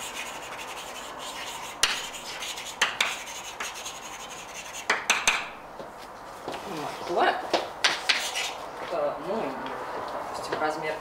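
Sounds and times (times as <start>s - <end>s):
chalk scratching on blackboard: 0.0s - 5.5s, 8.0s - 8.6s
chalk tapping: 0.0s - 5.9s, 7.5s - 8.6s.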